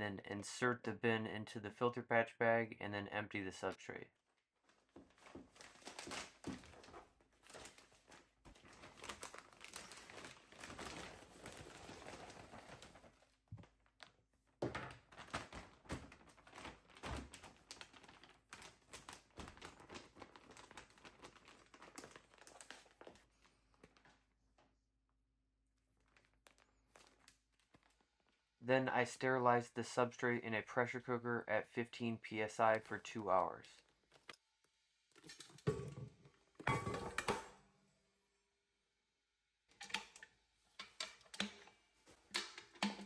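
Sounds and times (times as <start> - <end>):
plastic bag crinkling: 4.6 - 14.0, 15.0 - 24.3, 25.7 - 28.5.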